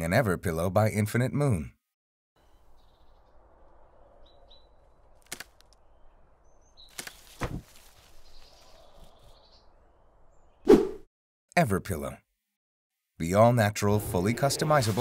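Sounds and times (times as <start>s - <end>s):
faint outdoor ambience: 2.4s - 10.6s
bird chirps: 2.4s - 10.7s
sharp crack: 5.2s - 5.8s.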